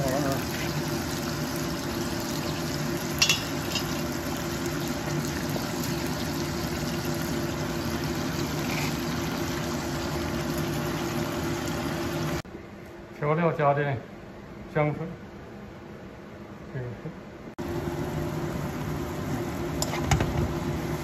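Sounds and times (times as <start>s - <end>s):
broth simmering and bubbling: 0.0s - 12.4s
ingredients clattering into pan: 3.2s - 4.0s.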